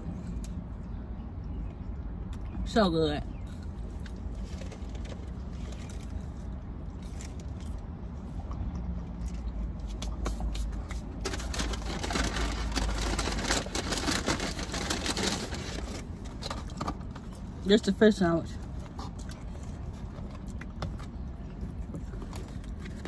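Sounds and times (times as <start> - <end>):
food packaging rustling: 11.0 - 17.2
chewing: 18.8 - 23.0.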